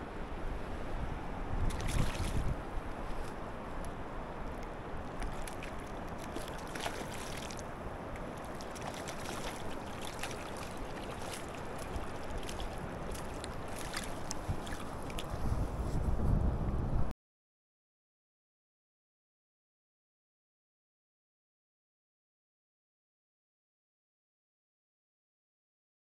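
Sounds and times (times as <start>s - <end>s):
river current rushing: 0.0s - 15.4s
small water splashes: 1.6s - 15.4s.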